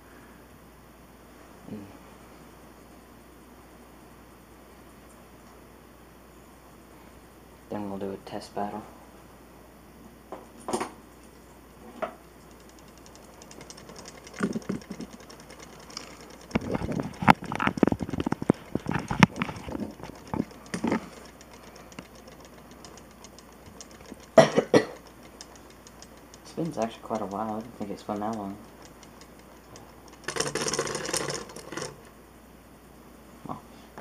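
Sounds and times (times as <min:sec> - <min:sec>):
spinning top ticking: 0:12.3 - 0:32.2.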